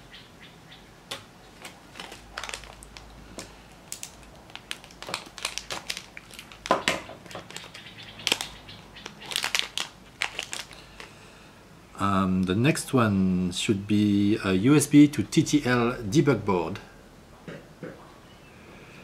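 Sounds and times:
plastic bags crinkling: 1.5s - 11.2s.

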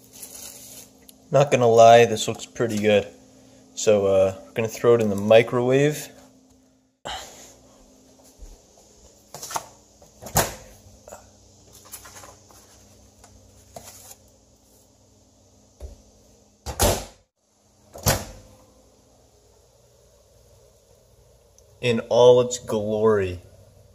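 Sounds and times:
faint steady hum: 0.0s - 23.9s
paper plate handled: 11.7s - 14.3s.

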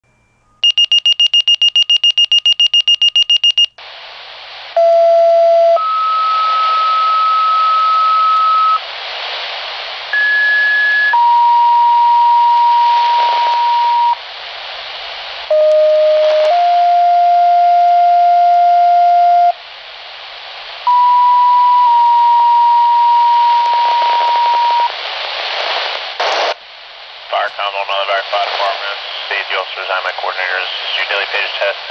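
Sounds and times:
rapid high beeping: 0.6s - 3.7s
two-tone paging signals: 0.6s - 3.8s
radio hiss: 3.8s - 4.8s, 6.2s - 17.0s, 19.4s - 31.9s.

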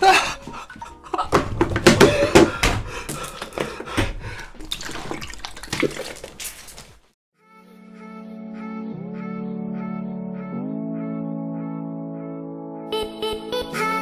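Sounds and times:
man gulping water: 0.0s - 1.3s, 2.1s - 6.9s
water sloshing and spilling: 0.0s - 7.2s.

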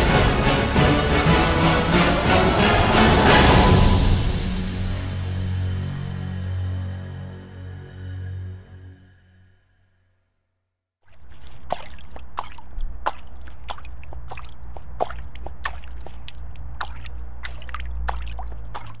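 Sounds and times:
water trickling and dripping: 11.0s - 19.0s.

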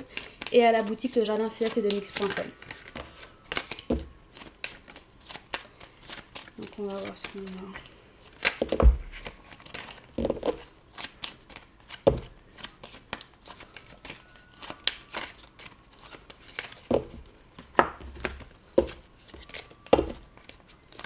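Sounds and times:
cards shuffling: 0.0s - 21.0s.

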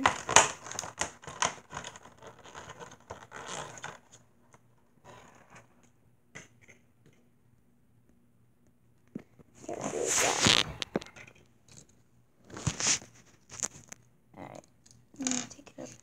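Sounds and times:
plastic packaging crinkling and tearing: 9.9s - 11.1s.

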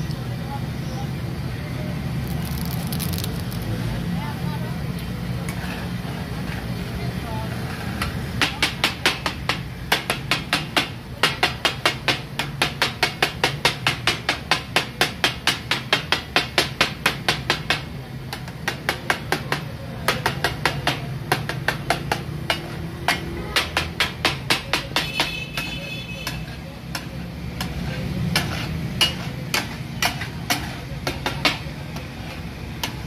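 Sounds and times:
spatulas clacking on a griddle: 7.6s - 33.0s.

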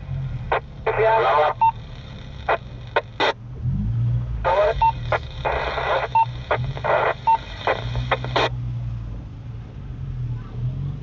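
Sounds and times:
low engine hum: 0.0s - 11.0s
crackling radio transmission: 0.5s - 3.4s, 4.4s - 8.6s
radio squelch: 0.5s - 3.4s, 4.4s - 8.6s
short radio beep: 0.9s - 3.4s, 4.5s - 8.5s.

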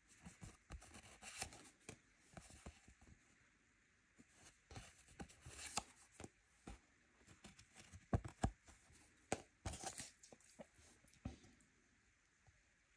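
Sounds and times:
paper cards rustling: 4.7s - 6.3s, 9.3s - 10.8s.

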